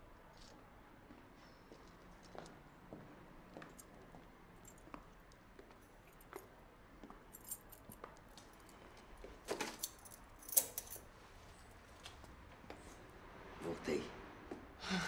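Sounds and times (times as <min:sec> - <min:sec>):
metallic jingling clatter: 0:09.7 - 0:11.1.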